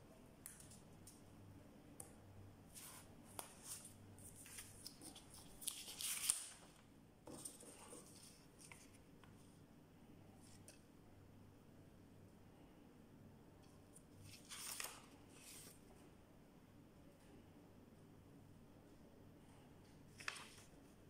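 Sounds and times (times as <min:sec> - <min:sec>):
paper rustling: 0:02.7 - 0:09.0, 0:14.2 - 0:15.8, 0:20.1 - 0:20.8.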